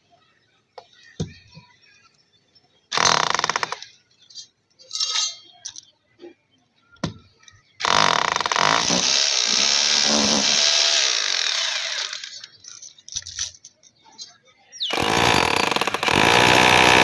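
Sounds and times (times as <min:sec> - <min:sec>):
electric drill boring into concrete: 0:07.8 - 0:12.4, 0:14.9 - 0:17.0.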